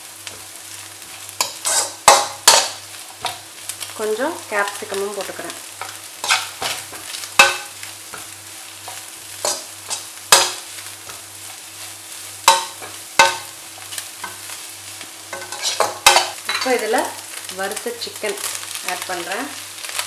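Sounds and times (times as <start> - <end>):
light sizzle of frying: 0.0 - 20.0
metal spatula scraping a wok: 1.0 - 3.4, 5.8 - 16.8.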